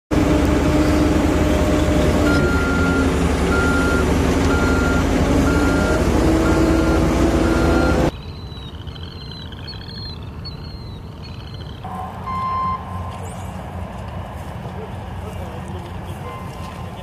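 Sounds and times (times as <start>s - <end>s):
diesel engine running loudly: 0.1s - 8.1s
reversing alarm beeping: 2.2s - 10.1s, 10.7s - 13.2s.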